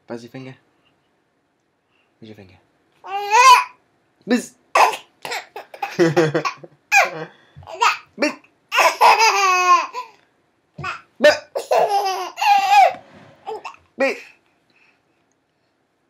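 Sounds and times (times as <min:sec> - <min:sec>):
baby laughing: 0:03.0 - 0:03.8, 0:04.8 - 0:10.2, 0:10.8 - 0:14.3.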